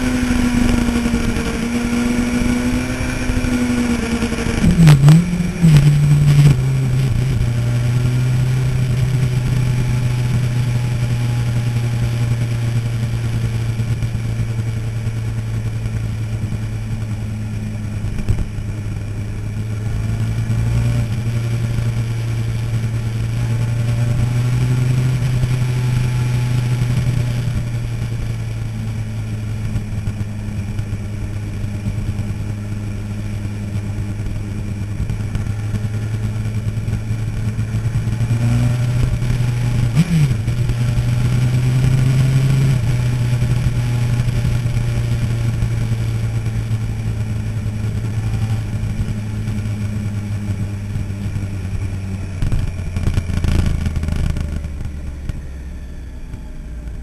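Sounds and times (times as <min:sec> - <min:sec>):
motorcycle engine slowing: 0:00.0 - 0:57.0.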